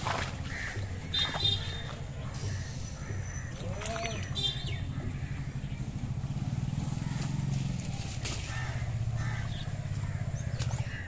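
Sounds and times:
rustles and splashes of plants: 0:00.0 - 0:11.0
small engine running: 0:05.2 - 0:10.5.

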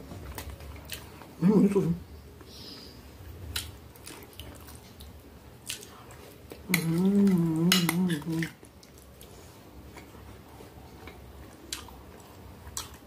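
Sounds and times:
person chewing: 0:00.2 - 0:01.3, 0:03.4 - 0:13.0
person humming with full mouth: 0:06.7 - 0:08.5.

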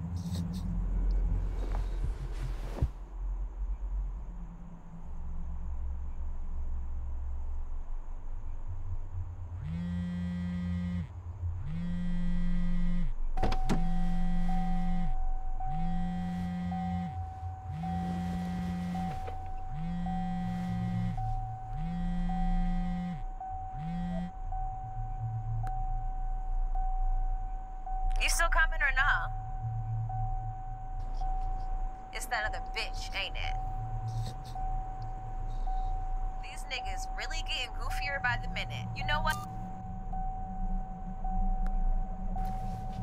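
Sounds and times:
low rumble: 0:00.0 - 0:09.8, 0:11.1 - 0:43.0
phone vibrating on hard surface: 0:09.6 - 0:13.2, 0:13.8 - 0:24.4.

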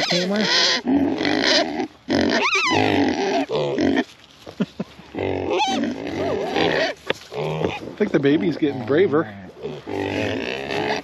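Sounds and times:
pig high call: 0:00.0 - 0:04.0, 0:05.5 - 0:07.9
pigs grunting: 0:00.0 - 0:04.1, 0:05.0 - 0:11.0.

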